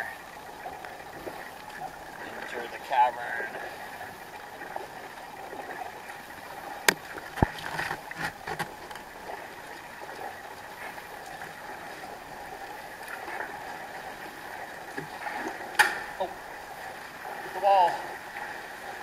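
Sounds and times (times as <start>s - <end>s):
paddle splashing: 0.0s - 19.0s
water lapping: 0.0s - 19.0s
sharp knocks: 15.8s - 16.1s.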